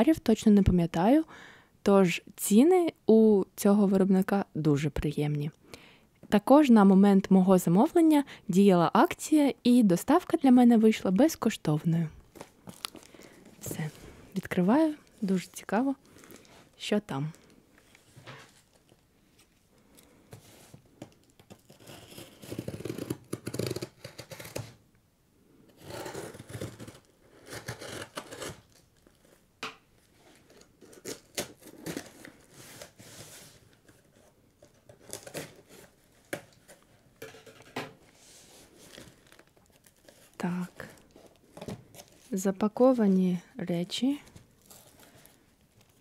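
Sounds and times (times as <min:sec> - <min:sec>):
blade slitting packing tape: 0:21.6 - 0:24.8, 0:25.8 - 0:28.8
cardboard rubbing: 0:30.2 - 0:37.0.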